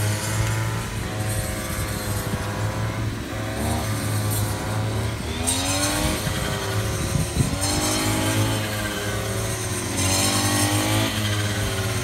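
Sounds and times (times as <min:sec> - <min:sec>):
brush cutter engine revving: 0:00.0 - 0:12.0.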